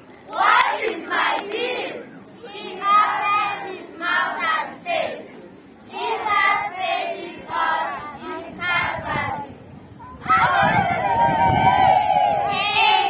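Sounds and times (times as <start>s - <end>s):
students singing in unison: 5.9s - 9.5s.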